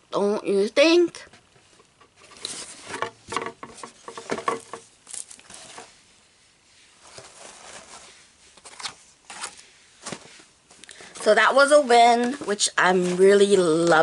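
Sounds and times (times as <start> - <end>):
paper packaging crinkling: 4.2 - 5.9.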